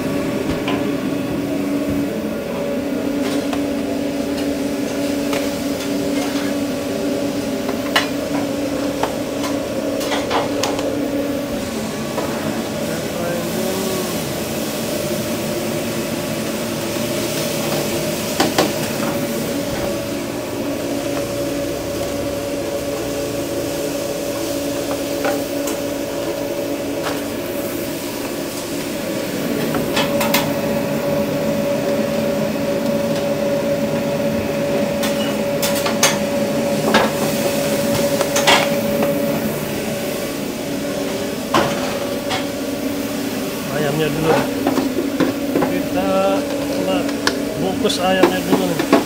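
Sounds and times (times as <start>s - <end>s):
machine hum: 0.0s - 49.0s
utensils knocking on pots: 48.1s - 49.0s.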